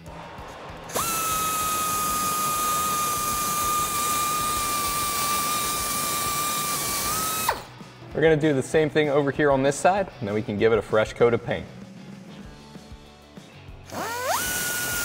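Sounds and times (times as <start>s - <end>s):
die grinder whining: 0.9s - 7.7s, 13.9s - 15.0s.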